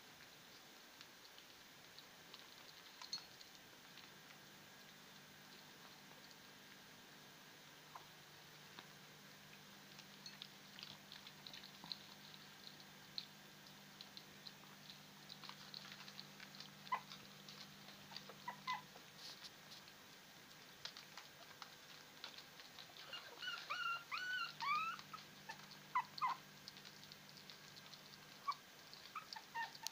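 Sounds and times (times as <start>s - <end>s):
puppies lapping food: 0.1s - 29.9s
puppies whimpering: 16.6s - 19.0s, 22.3s - 26.4s, 28.3s - 29.9s
puppy squeaks: 18.3s - 18.9s, 23.0s - 26.4s, 28.4s - 29.9s.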